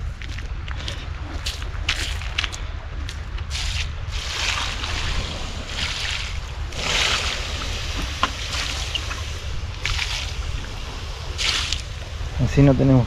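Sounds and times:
wind rumble on microphone: 0:00.0 - 0:13.0
water hissing on embers: 0:03.5 - 0:13.0.

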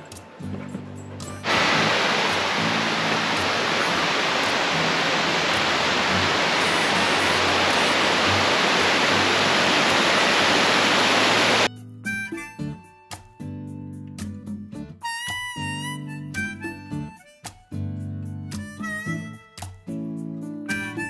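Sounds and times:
soft background music: 0:00.0 - 0:10.2
rushing mountain water: 0:01.4 - 0:11.7.

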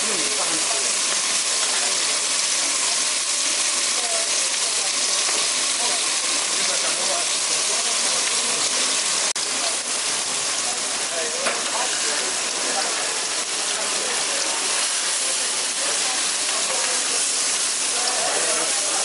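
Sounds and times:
faint voices: 0:00.0 - 0:19.0
fish sizzling on a grill: 0:00.0 - 0:19.0.

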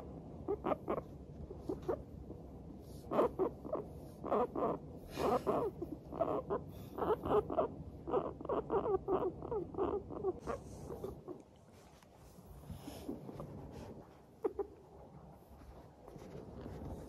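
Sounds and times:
guinea pig chutting calls: 0:00.0 - 0:11.4, 0:14.4 - 0:14.8.

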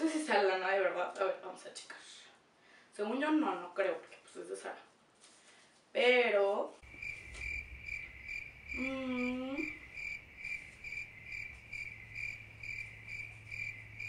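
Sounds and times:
crickets chirping: 0:06.8 - 0:14.0
person humming: 0:08.7 - 0:09.9.

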